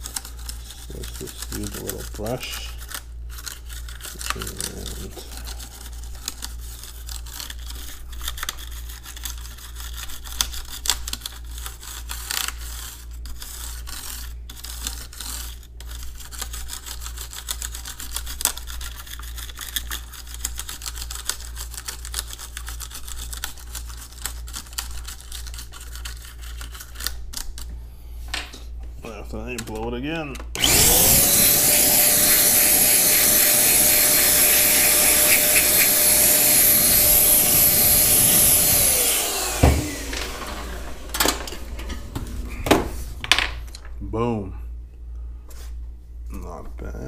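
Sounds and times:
steady low hum: 27.6 - 47.0
brush scrubbing keyboard switches: 31.7 - 39.5.

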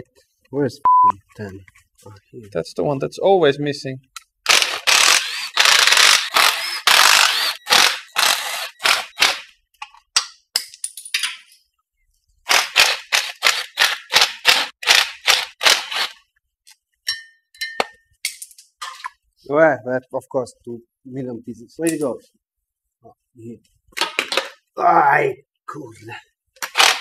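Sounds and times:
impact wrench bursts: 4.5 - 9.5.

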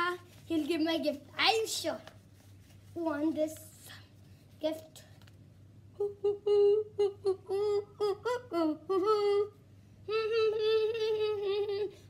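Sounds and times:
boy humming: 6.0 - 12.0.

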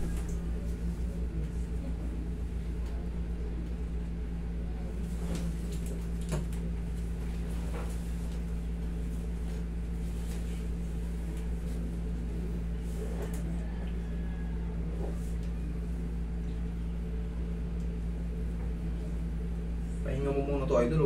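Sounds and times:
air conditioner humming: 0.0 - 21.0.

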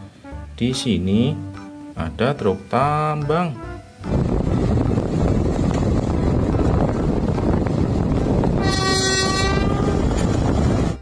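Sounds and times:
horn blast: 8.5 - 10.2.

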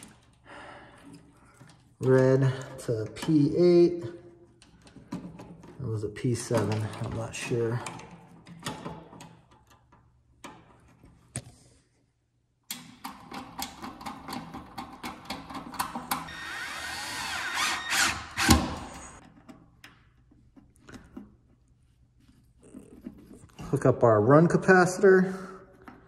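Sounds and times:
grinding whirr: 16.3 - 19.2.

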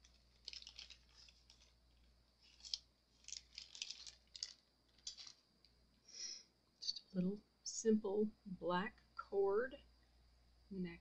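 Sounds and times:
small clicks and rustles: 0.0 - 5.8.

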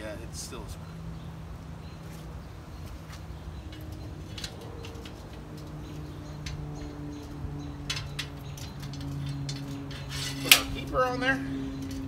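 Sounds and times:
metal clicks: 3.5 - 10.9.

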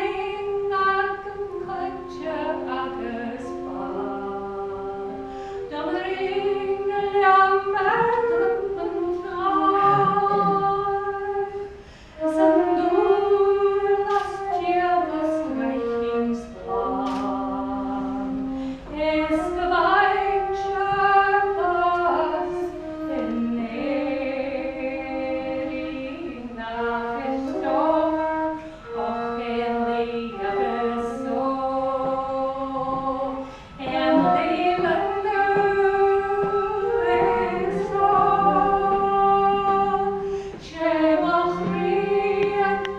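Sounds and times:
woman singing slow song: 0.0 - 42.9
wooden flute melody: 0.0 - 42.9.

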